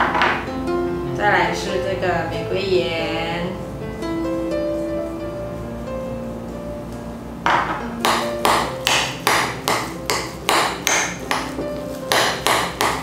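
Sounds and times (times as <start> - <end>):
soft background music: 0.0 - 13.0.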